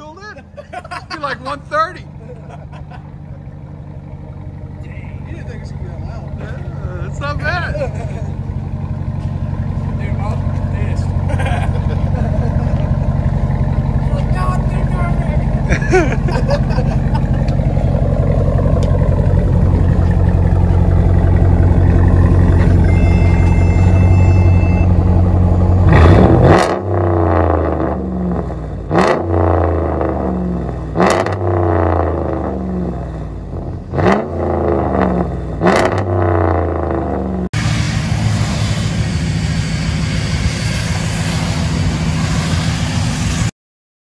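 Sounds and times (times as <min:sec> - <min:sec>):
engine idling and revving: 0:00.0 - 0:43.5
tyres hissing on wet pavement: 0:37.6 - 0:43.5.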